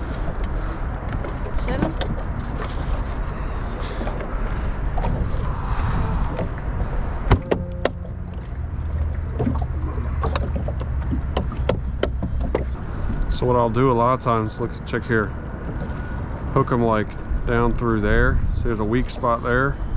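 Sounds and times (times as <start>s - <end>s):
wind and water rumble: 0.0s - 19.9s
gear knocking on boat deck: 7.3s - 13.3s.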